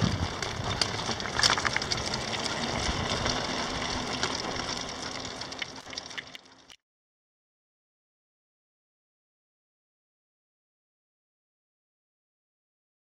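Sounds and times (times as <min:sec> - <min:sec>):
small rattles and clicks: 0:00.0 - 0:06.8
wheels rolling on paved road: 0:00.0 - 0:06.8.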